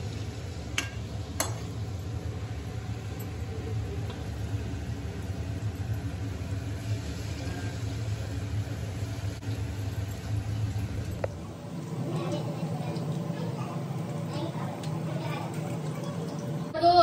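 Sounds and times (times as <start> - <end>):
batter sizzling in hot oil: 0.0 - 16.8.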